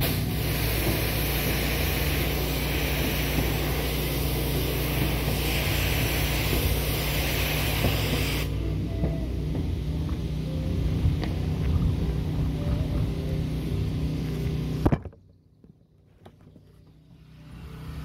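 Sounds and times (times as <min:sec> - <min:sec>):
water jet hissing: 0:00.0 - 0:08.6
pressure washer engine running: 0:00.0 - 0:14.8.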